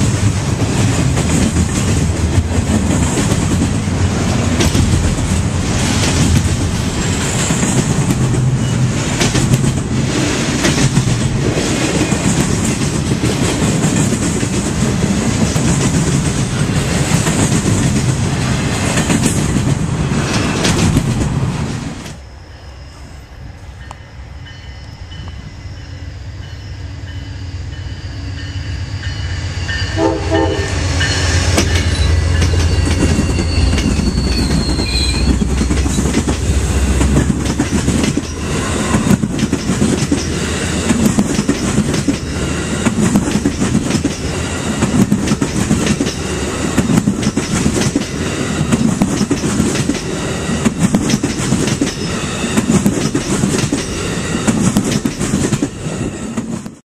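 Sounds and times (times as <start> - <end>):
train wheels clacking on rails: 0.0 - 21.4, 28.4 - 56.8
train horn: 29.8 - 32.4.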